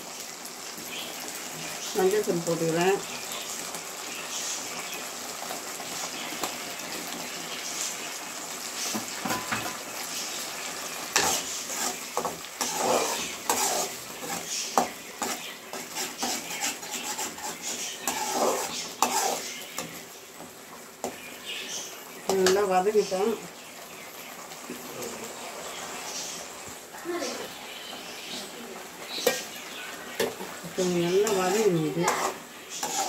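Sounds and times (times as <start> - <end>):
paste sizzling in a pan: 0.0 - 33.0
spoon scraping a pan: 11.0 - 20.0, 29.0 - 33.0.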